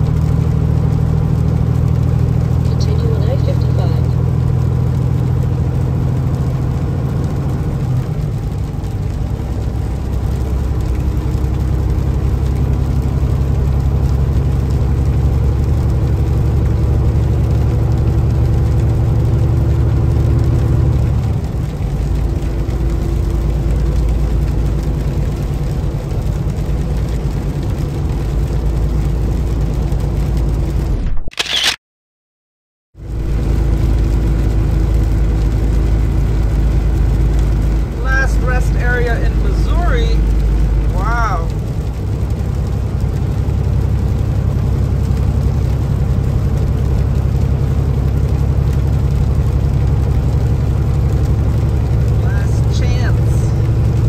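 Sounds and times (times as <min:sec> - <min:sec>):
truck engine and tyres on wet road: 0:00.0 - 0:31.8, 0:33.0 - 0:54.0
brief sharp noise: 0:31.0 - 0:31.8.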